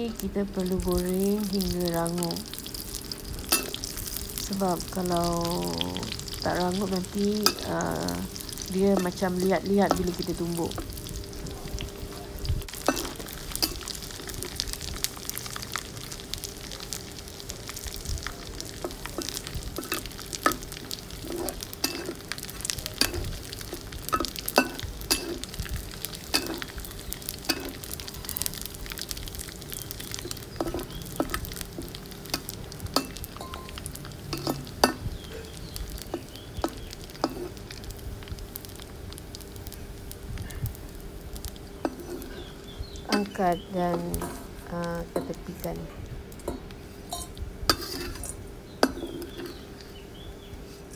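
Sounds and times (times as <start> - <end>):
fish frying in hot oil: 0.0 - 50.8
metal spatula scraping wok: 18.8 - 25.6, 26.2 - 28.4, 30.2 - 35.4, 36.1 - 37.6, 41.8 - 44.6, 47.1 - 49.7.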